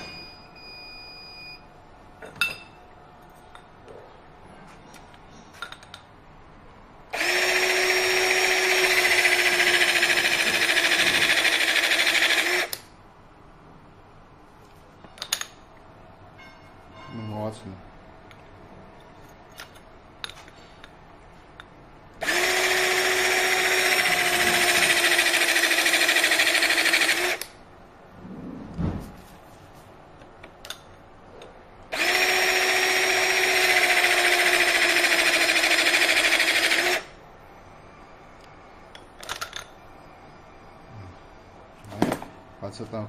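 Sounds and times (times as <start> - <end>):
hydraulic crimping tool motor whine: 7.1 - 12.8, 22.2 - 27.5, 31.9 - 37.2
tool handling thump: 41.9 - 42.3.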